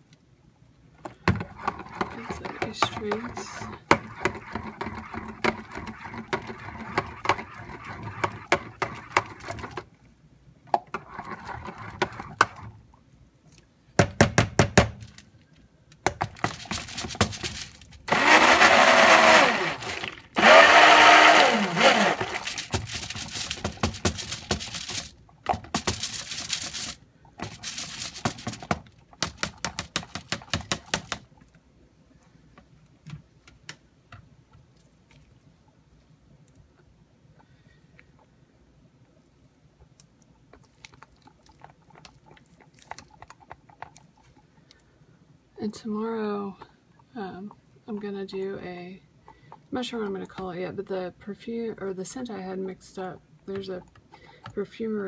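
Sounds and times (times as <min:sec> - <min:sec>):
stick blender motor: 0:18.1 - 0:23.4.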